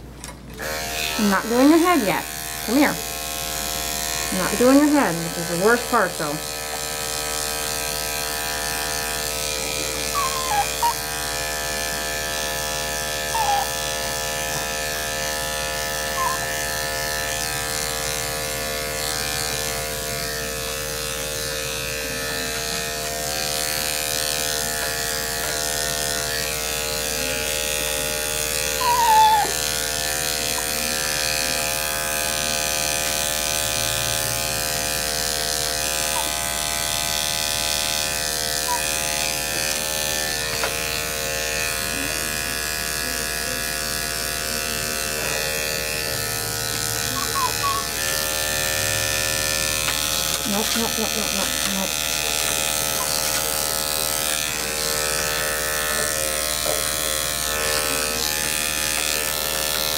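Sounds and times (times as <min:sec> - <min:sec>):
electric clippers humming: 0:00.0 - 0:59.9
dog whining: 0:09.6 - 0:11.4, 0:13.2 - 0:14.6, 0:16.1 - 0:16.7, 0:28.6 - 0:30.8, 0:36.1 - 0:36.5, 0:38.6 - 0:39.1, 0:47.0 - 0:48.1, 0:50.4 - 0:53.5.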